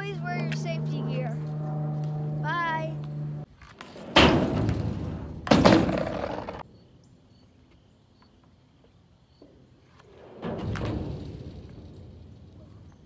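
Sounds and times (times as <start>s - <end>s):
skateboard slapping on ramp: 3.8s - 6.6s.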